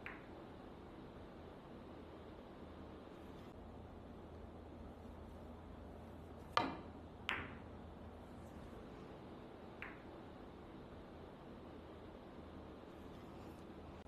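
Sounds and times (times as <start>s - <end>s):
billiard balls clicking: 0.0s - 0.4s, 6.4s - 7.8s, 9.7s - 10.2s.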